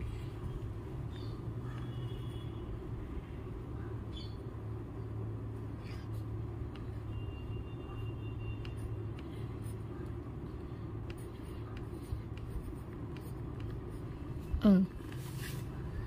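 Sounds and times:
low machinery hum and rumble: 0.0s - 16.0s
pencil scratching on paper: 10.6s - 14.2s.

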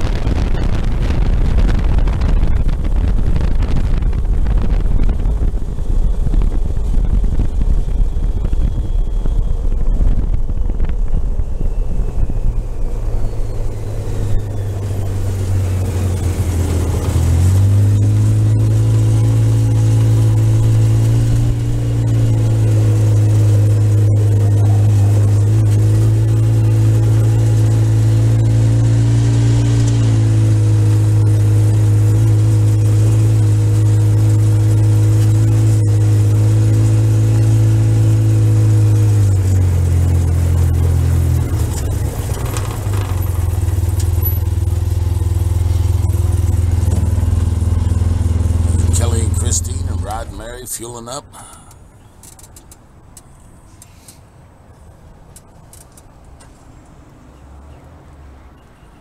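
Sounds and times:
wind buffeting: 0.0s - 23.9s
atv engine: 0.0s - 59.0s.

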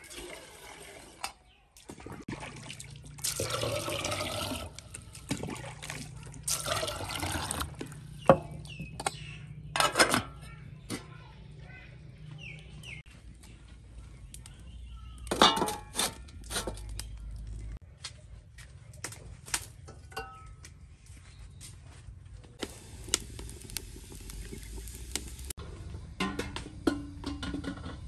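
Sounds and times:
metal pots clinking and knocking: 6.4s - 11.1s, 15.2s - 16.9s, 19.9s - 20.6s, 26.0s - 28.0s.

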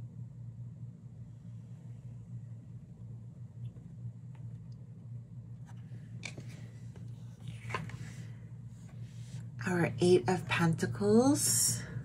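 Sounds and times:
low electrical hum: 0.0s - 12.0s
cards tapping and scraping: 5.7s - 8.2s.

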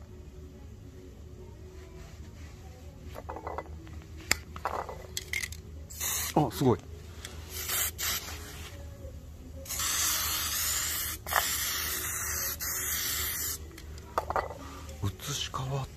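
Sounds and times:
spray paint can hissing: 5.9s - 6.4s, 7.5s - 8.6s, 9.6s - 13.6s.

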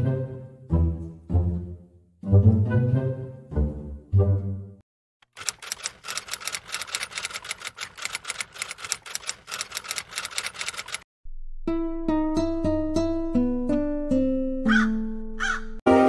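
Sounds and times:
keyboard typing clicks: 5.2s - 11.0s.

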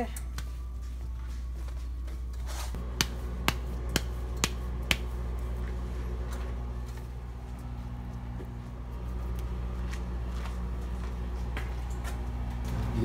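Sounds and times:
steady low hum: 0.0s - 13.0s
hands patting dough: 2.8s - 5.2s.

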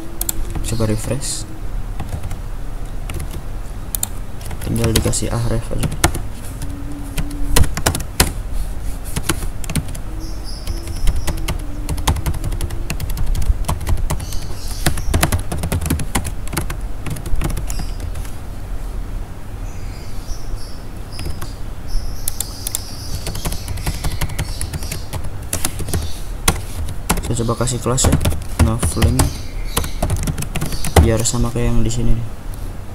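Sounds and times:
low steady hum: 0.0s - 32.9s
keyboard keys clicking: 0.2s - 1.3s, 2.0s - 2.4s, 3.1s - 5.2s, 5.8s - 6.2s, 7.1s - 8.4s, 9.2s - 10.0s, 10.6s - 18.4s, 21.2s - 21.5s, 22.3s - 31.4s.

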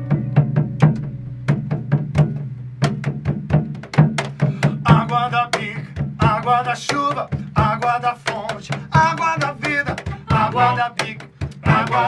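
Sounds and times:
held low note: 0.0s - 3.0s
drum struck with sticks: 0.0s - 12.0s
hand drum: 0.0s - 12.0s
person singing: 4.7s - 12.0s.

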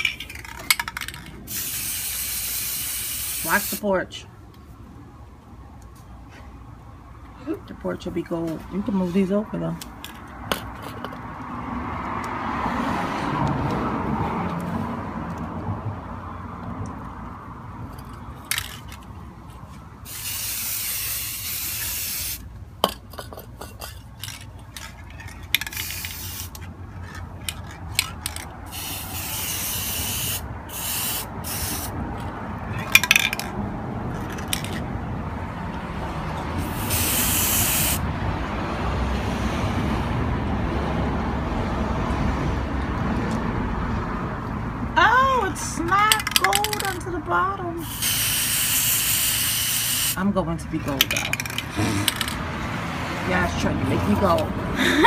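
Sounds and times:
spray paint can hissing: 1.5s - 3.9s, 20.0s - 22.5s, 25.5s - 26.7s, 28.2s - 32.0s, 36.6s - 38.0s, 47.8s - 50.2s.

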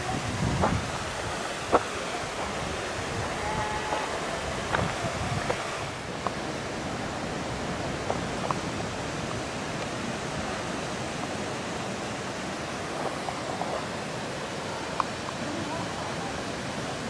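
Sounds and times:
waterfalls rushing into pools: 0.0s - 17.0s.

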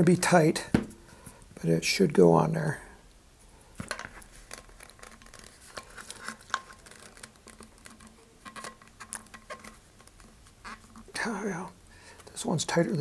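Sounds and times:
small clicks and scratches: 3.8s - 12.4s.

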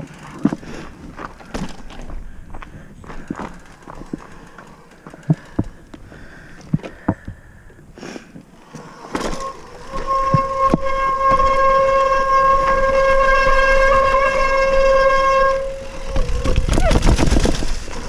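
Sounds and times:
tyres rattling on gravel: 0.0s - 6.8s, 15.8s - 18.0s.

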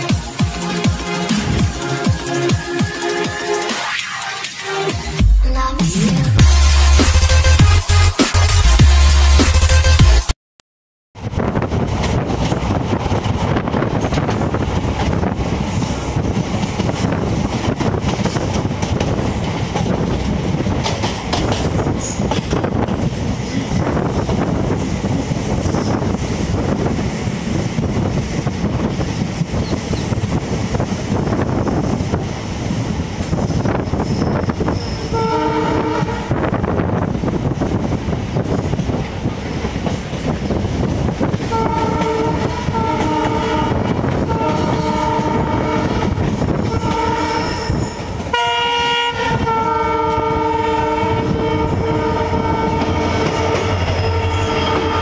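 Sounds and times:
train wheels rumbling and rattling: 0.0s - 3.8s, 11.2s - 55.0s
wind rushing: 11.2s - 48.3s, 49.1s - 55.0s
train horn: 34.8s - 36.6s, 41.5s - 55.0s.

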